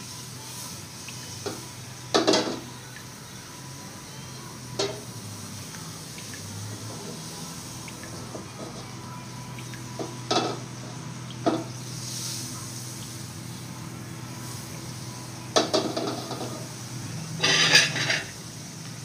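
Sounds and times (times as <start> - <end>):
pancakes sizzling: 0.0 - 19.0
metal utensil scraping a pan: 17.4 - 18.4.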